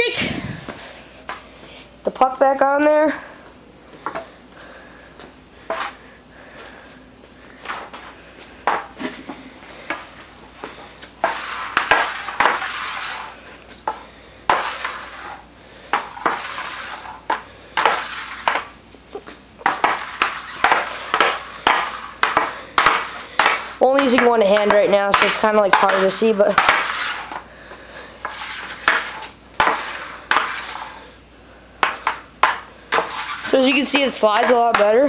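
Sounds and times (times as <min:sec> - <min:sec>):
puck scraping across board: 0:05.7 - 0:06.0, 0:11.2 - 0:18.8, 0:19.6 - 0:27.4, 0:28.2 - 0:31.0, 0:31.8 - 0:35.0.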